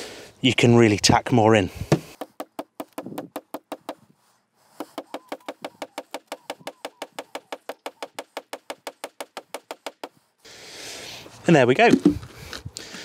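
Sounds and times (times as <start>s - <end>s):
small hammer tapping tack: 4.8s - 10.2s.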